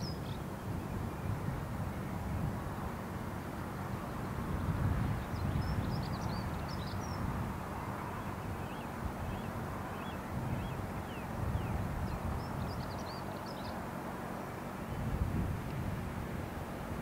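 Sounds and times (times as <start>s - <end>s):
small birds chirping: 5.2s - 13.8s.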